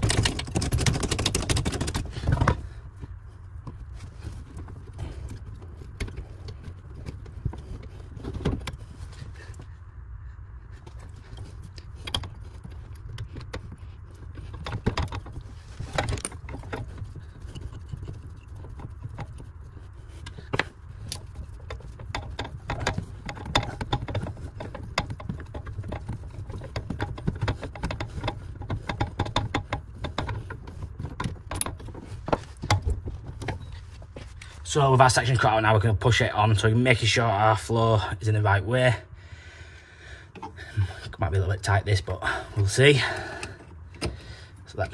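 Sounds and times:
steady low hum: 0.0 - 44.9
tools clicking on copper pipe: 11.3 - 33.8.

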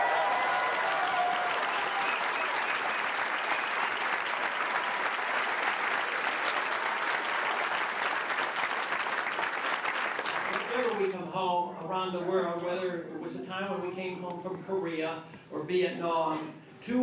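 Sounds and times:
crowd applauding: 0.0 - 11.3.

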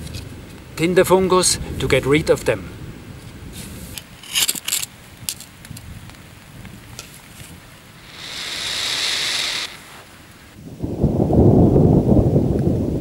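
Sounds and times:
burst of hiss: 7.9 - 10.6.

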